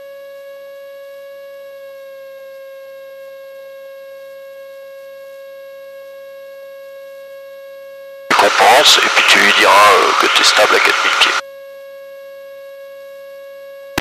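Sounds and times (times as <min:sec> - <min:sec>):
steady high whine over intercom: 0:08.3 - 0:11.4.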